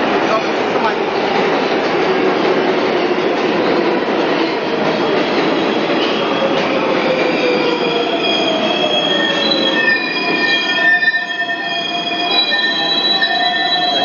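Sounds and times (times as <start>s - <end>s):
train rumbling: 0.0s - 10.6s
subway wheels squealing: 1.2s - 14.0s.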